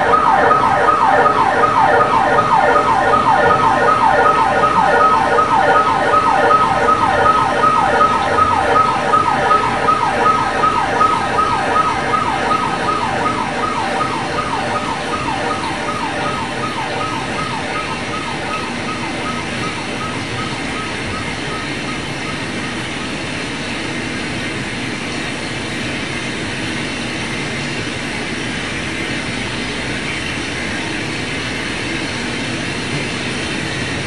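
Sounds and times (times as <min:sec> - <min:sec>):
steady high tone: 0:00.0 - 0:23.5
falling pitch siren sweeps: 0:00.0 - 0:23.9.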